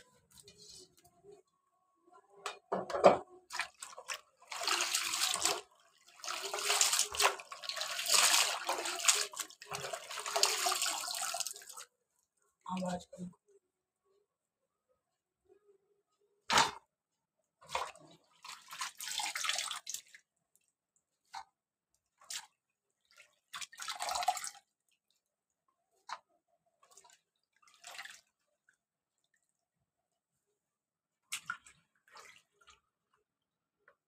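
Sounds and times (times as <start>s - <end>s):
water splashing and sloshing in tub: 3.4s - 11.9s, 17.6s - 29.9s, 31.1s - 33.4s.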